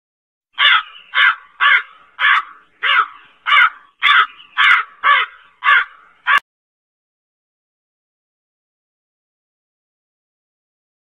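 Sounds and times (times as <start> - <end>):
crow cawing: 0.6 - 6.4.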